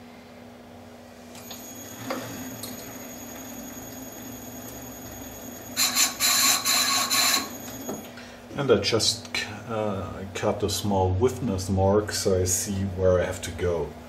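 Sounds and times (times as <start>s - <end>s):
lathe spindle hum and whine: 1.4s - 8.5s
turning tool scraping cut: 5.8s - 7.6s.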